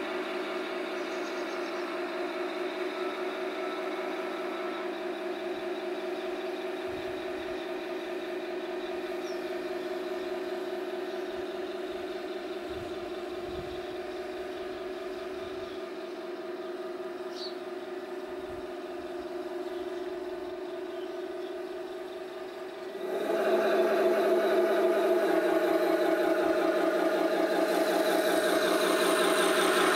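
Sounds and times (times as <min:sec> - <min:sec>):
toy tank engine drone: 0:00.0 - 0:29.9.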